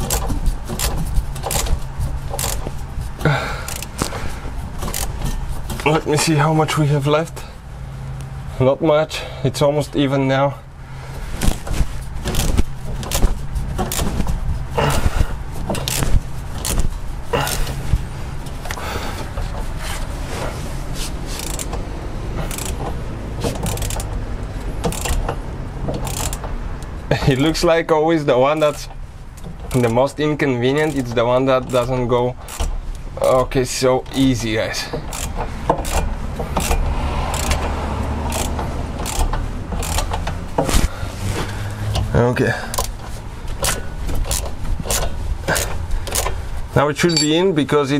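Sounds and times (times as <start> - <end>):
ratchet pawl clicking: 0.0 - 2.8, 3.6 - 4.1, 4.8 - 5.4, 15.8 - 16.8, 21.4 - 21.8, 22.4 - 22.9, 23.5 - 24.2, 24.8 - 25.4, 26.0 - 26.5, 35.0 - 37.7, 38.3 - 40.4, 43.6 - 46.4
metallic clicks and scrapes of wheel hub: 0.0 - 8.4, 11.0 - 27.6, 28.4 - 47.9
steady low hum: 0.0 - 27.2.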